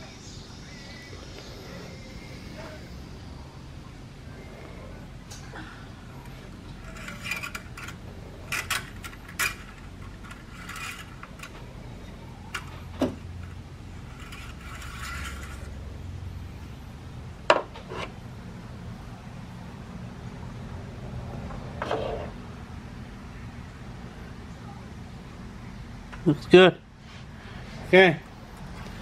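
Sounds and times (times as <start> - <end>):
dipstick clinking and scraping: 6.2 - 15.8.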